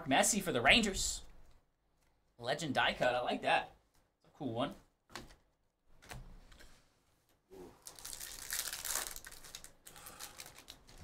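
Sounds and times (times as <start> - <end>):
wrapper crinkling and tearing: 7.8 - 11.0.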